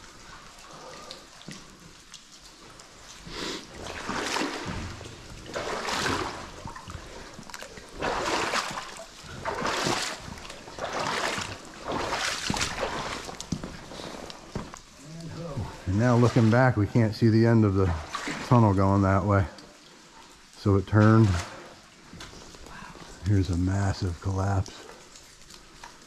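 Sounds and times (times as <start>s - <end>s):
footsteps splashing through water: 0.0s - 15.0s, 17.9s - 18.7s
faint trickling water: 0.0s - 26.0s.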